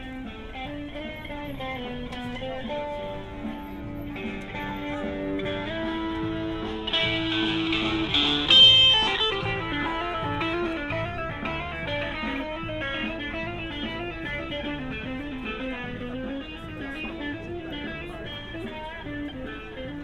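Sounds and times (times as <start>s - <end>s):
guitar plucking single notes: 0.0s - 20.0s
guitar chord struck: 4.2s - 19.7s.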